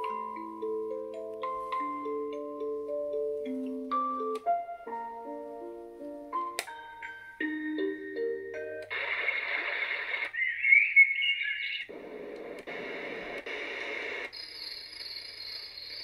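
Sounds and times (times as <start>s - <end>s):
static-like hiss effects: 8.7s - 16.0s
warbling whistle-like chirp: 10.3s - 11.9s.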